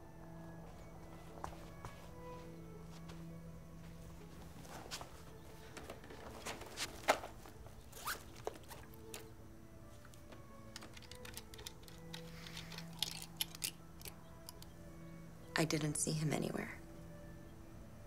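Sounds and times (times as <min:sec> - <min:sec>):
soft background music: 0:00.0 - 0:18.0
clicks and rustles in a bag: 0:04.7 - 0:09.3, 0:10.1 - 0:14.7
zipper pulled open: 0:08.0 - 0:08.4
flask cap turning clicks: 0:10.7 - 0:14.7.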